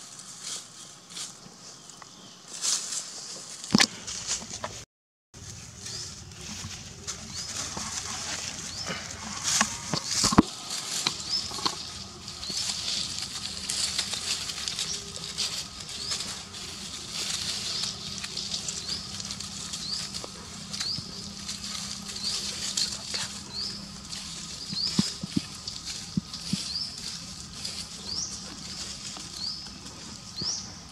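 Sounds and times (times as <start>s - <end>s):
dry leaves rustling and crackling: 0.0s - 4.8s, 5.4s - 30.9s
steady high hiss: 5.4s - 30.9s.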